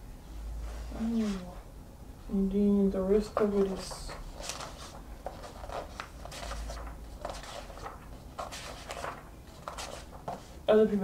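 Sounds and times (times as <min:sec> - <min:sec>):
magazine pages rustling: 0:03.2 - 0:10.6.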